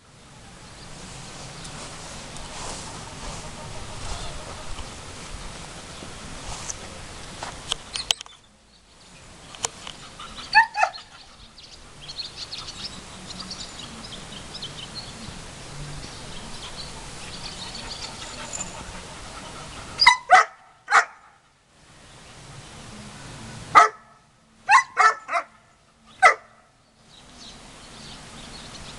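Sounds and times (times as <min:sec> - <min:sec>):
dog barking: 0:10.5 - 0:11.1, 0:20.0 - 0:21.4, 0:23.8 - 0:25.6, 0:26.2 - 0:26.6.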